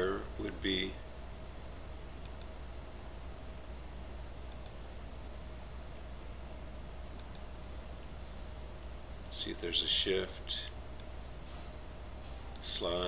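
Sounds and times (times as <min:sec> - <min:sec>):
low electrical hum: 0:00.0 - 0:13.0
computer mouse double-clicks: 0:02.2 - 0:02.5, 0:04.5 - 0:04.8, 0:07.2 - 0:07.4.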